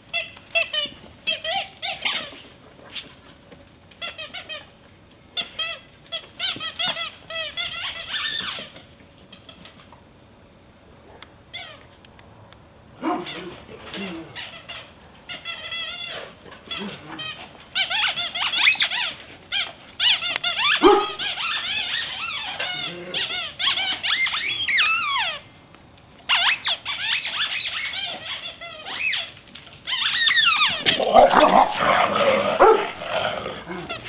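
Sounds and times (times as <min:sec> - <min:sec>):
squeaky dog toy squeaking: 0:04.0 - 0:04.7, 0:05.4 - 0:09.7, 0:13.3 - 0:25.6, 0:26.3 - 0:32.0.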